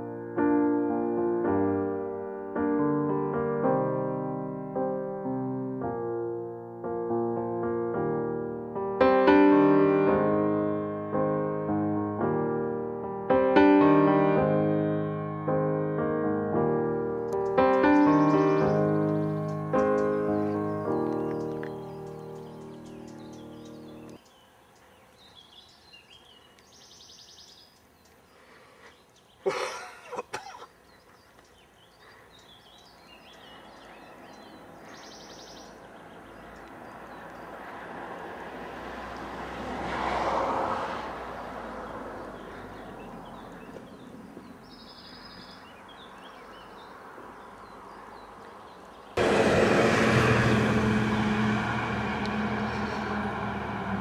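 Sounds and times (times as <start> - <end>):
vehicle passing on road: 16.7 - 27.2, 31.3 - 54.0
high bird chirps: 17.3 - 28.2, 31.0 - 37.5, 42.2 - 49.2
rushing noise with low hum: 49.2 - 54.0.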